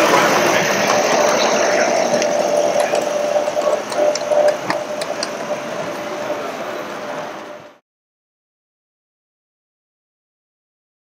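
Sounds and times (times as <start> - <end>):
steam locomotive hissing: 0.0 - 7.8.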